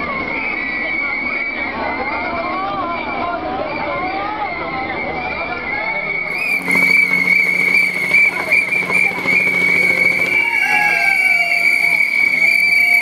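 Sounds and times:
crowd voices and shouts: 0.0s - 13.0s
shrill whistles blowing: 6.2s - 13.0s.

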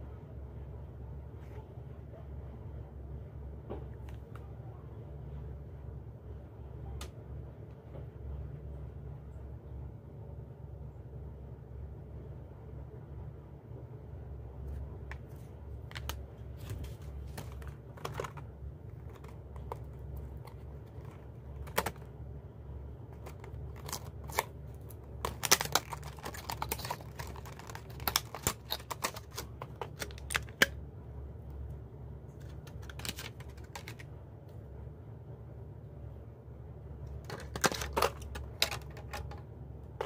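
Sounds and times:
plastic packaging crackling: 15.8s - 22.1s, 23.1s - 30.7s, 32.4s - 34.1s, 37.2s - 39.4s.

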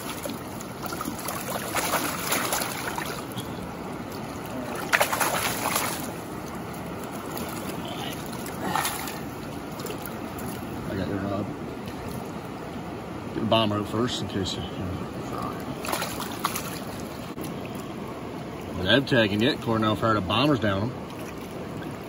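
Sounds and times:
fish splashing in water: 0.0s - 10.8s, 15.7s - 17.9s
stream trickling: 0.0s - 22.0s.

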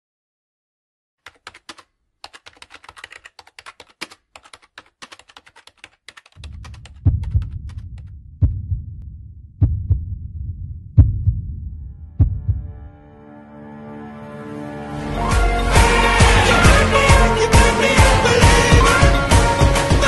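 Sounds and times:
keyboard typing: 1.2s - 8.1s
heartbeat thuds: 6.4s - 12.8s
low rumble: 6.4s - 13.2s.

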